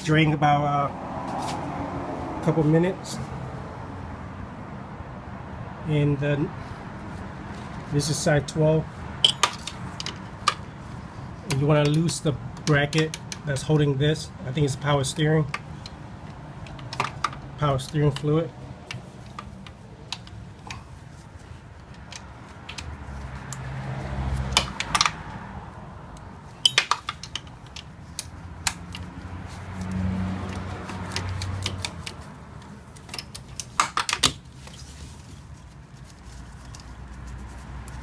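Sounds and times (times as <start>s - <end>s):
hand tools clicking against metal: 9.2s - 10.6s, 26.2s - 29.1s, 29.8s - 34.4s.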